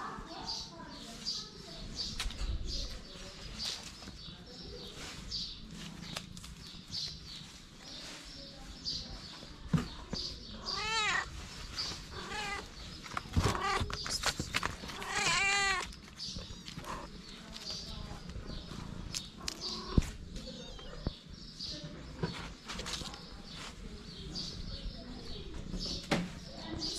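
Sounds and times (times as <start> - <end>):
cat meowing: 10.6 - 11.4, 12.1 - 12.8, 13.4 - 13.9, 14.9 - 16.0, 19.5 - 21.1.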